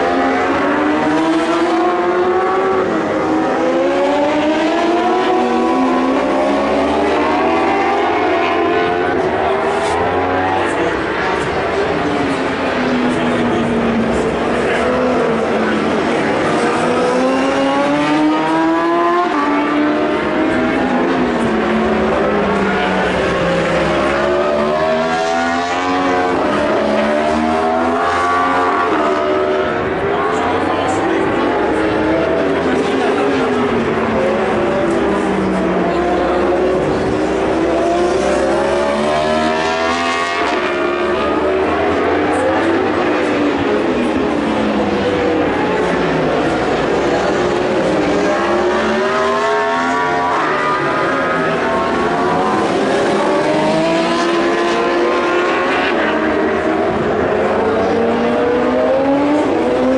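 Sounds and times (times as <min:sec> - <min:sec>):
motorcycle engine at high revs: 0:00.0 - 0:59.9
other motorcycle engines: 0:00.0 - 0:59.9.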